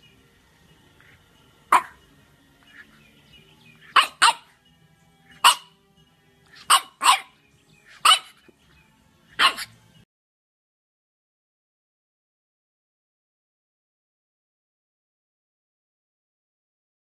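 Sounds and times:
dog barking: 1.7 - 2.0, 3.9 - 4.6, 5.3 - 5.8, 6.5 - 8.5, 9.3 - 9.8.

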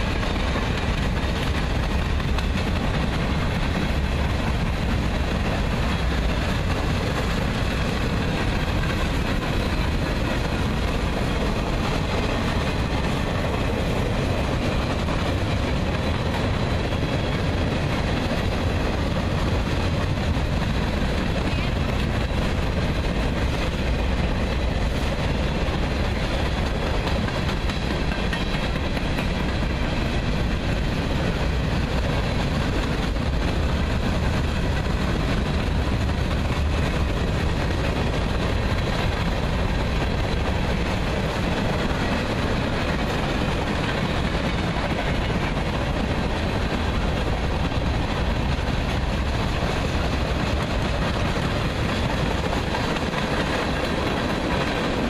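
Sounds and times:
freight train wheels rumbling on track: 0.0 - 55.0.

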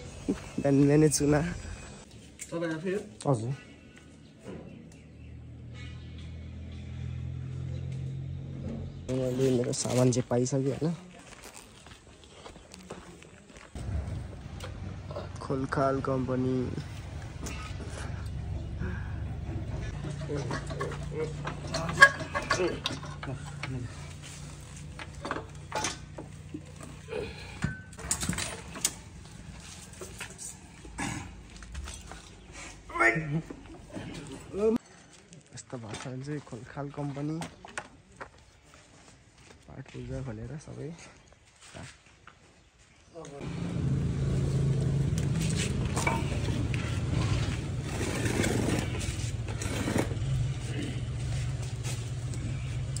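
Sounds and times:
metal clinks and scrapes: 19.9 - 30.7, 45.4 - 52.2
hand tools clinking on metal: 20.0 - 24.4, 45.8 - 46.6.

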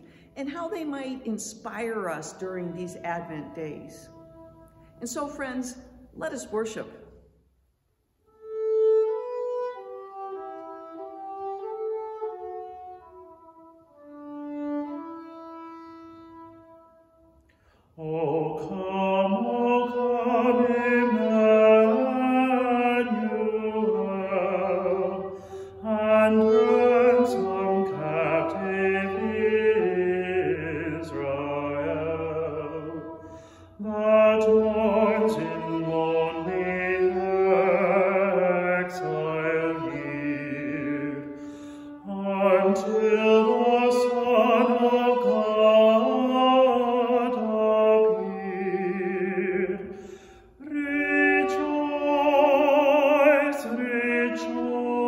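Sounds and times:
violin: 0.0 - 5.6, 8.3 - 17.3, 18.4 - 55.0
man singing a hymn: 18.0 - 50.0, 50.6 - 55.0.

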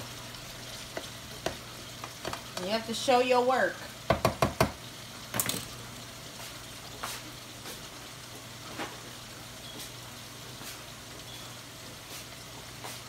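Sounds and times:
meat sizzling in a skillet: 0.0 - 13.0
spoon knocking on pan: 4.1 - 4.8.

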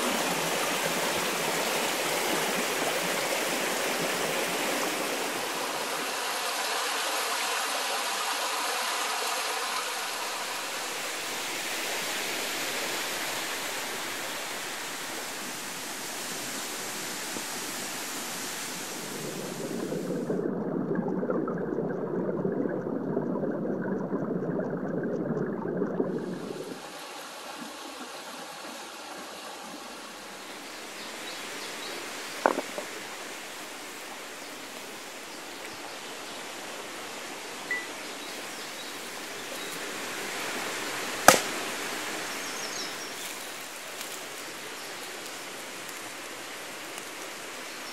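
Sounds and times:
stream running over rocks: 0.0 - 20.7, 25.6 - 47.9
sharp tap: 41.3 - 41.5.

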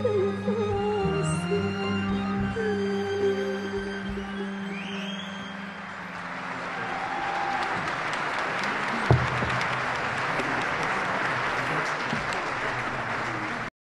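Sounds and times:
audience applauding: 4.2 - 13.7.

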